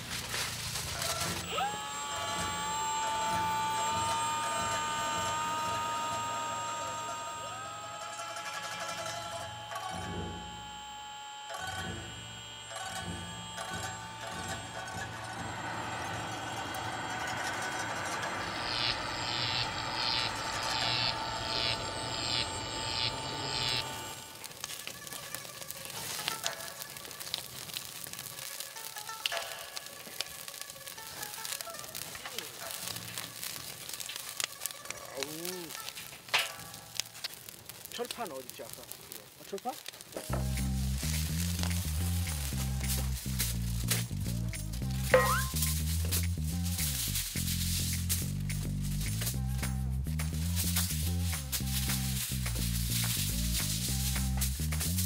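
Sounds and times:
electric leaf blower whining: 0:00.0 - 0:36.3, 0:39.8 - 0:55.0
fat popping on coals: 0:00.0 - 0:55.0
meat sizzling over charcoal: 0:00.0 - 0:55.0
pulsing mechanical whir: 0:01.3 - 0:24.4.

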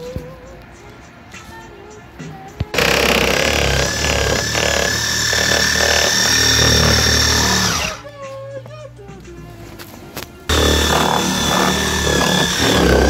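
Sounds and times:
power cut-out knife running: 0:02.8 - 0:08.0, 0:10.5 - 0:13.0.

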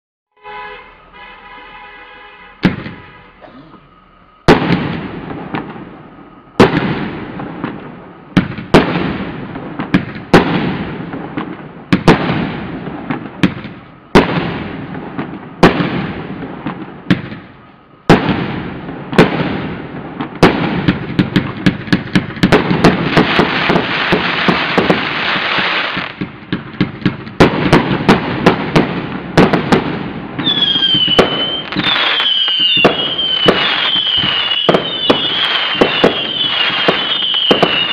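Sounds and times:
firework bangs with rumble: 0:02.6 - 0:03.2, 0:04.4 - 0:37.9
rapid firework cracks: 0:08.4 - 0:17.5, 0:18.1 - 0:37.9.

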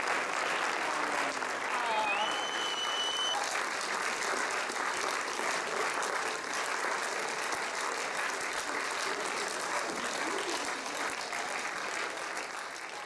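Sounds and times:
large crowd applauding: 0:00.0 - 0:13.0
high whistle: 0:01.9 - 0:03.4.

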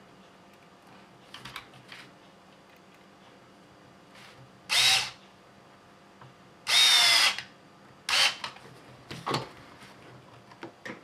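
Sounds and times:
electric screwdriver whirring: 0:04.7 - 0:05.2, 0:06.7 - 0:07.5, 0:08.1 - 0:08.4.

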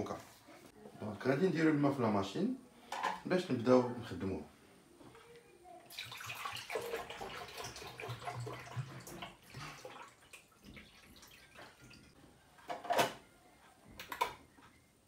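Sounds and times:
water pouring into a tank: 0:05.9 - 0:12.1.

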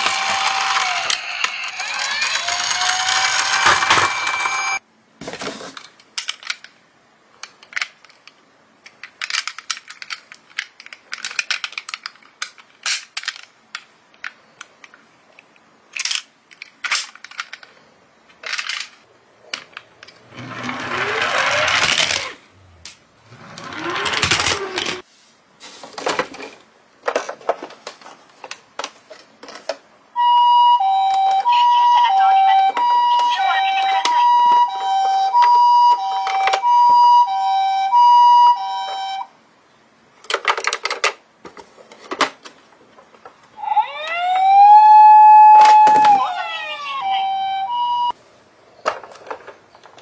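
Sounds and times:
toy police siren: 0:00.0 - 0:04.8, 0:20.5 - 0:22.3, 0:23.6 - 0:25.0, 0:30.2 - 0:39.3, 0:43.6 - 0:48.2
rustling and scraping in cardboard boxes: 0:05.2 - 0:05.9, 0:24.6 - 0:28.4
clicks and taps of toys handled: 0:07.4 - 0:17.7.

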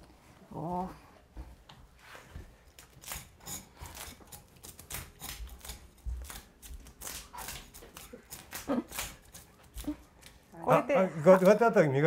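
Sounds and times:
knife scraping fish scales: 0:02.8 - 0:10.3.

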